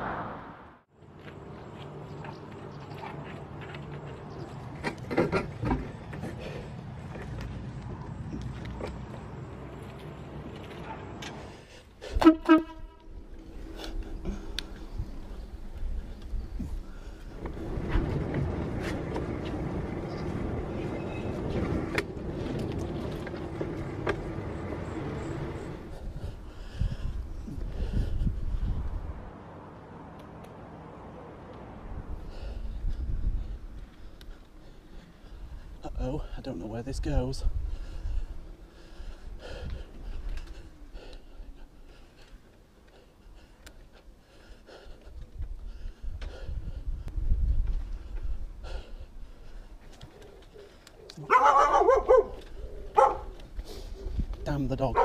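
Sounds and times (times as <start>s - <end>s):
tyre and wind rumble: 0.0s - 30.4s, 31.3s - 55.0s
bike clicks and rattles: 2.9s - 9.2s, 13.0s - 27.7s
rider breathing: 5.9s - 12.4s, 13.0s - 29.4s, 31.8s - 55.0s
low hum: 11.2s - 29.3s.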